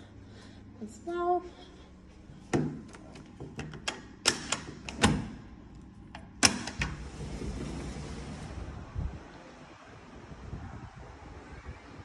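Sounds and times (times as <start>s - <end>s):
door latch clicks and clunks: 3.4s - 5.4s, 6.2s - 7.0s.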